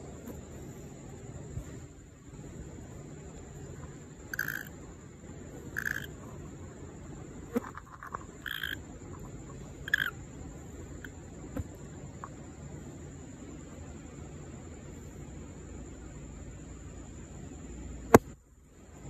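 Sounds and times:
high-pitched insect drone: 0:00.9 - 0:18.0
frog calling: 0:03.4 - 0:06.7, 0:07.4 - 0:11.2.

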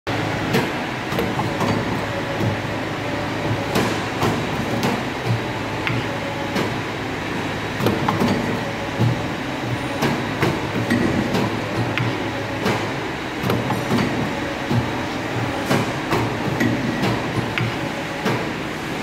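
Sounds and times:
machine humming: 0:00.1 - 0:19.0.

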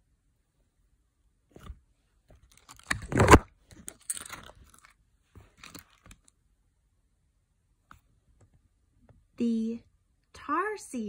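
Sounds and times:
book page rustling: 0:01.5 - 0:06.3.

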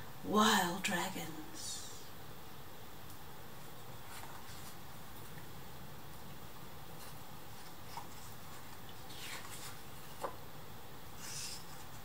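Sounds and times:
low room hiss: 0:00.0 - 0:12.0
paper rustling: 0:04.0 - 0:05.5, 0:06.9 - 0:10.4.

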